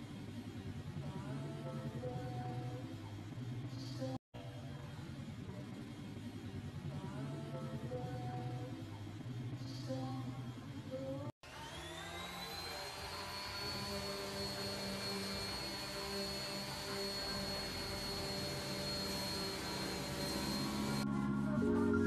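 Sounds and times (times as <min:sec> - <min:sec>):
orbital sander whining: 0:11.5 - 0:21.0.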